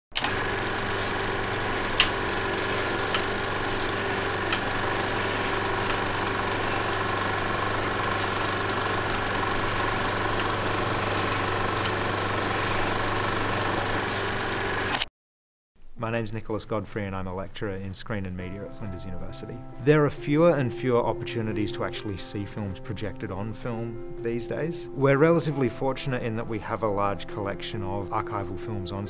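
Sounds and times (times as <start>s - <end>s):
film projector whirring: 0.1s - 15.1s
projector clicks: 0.1s - 15.1s.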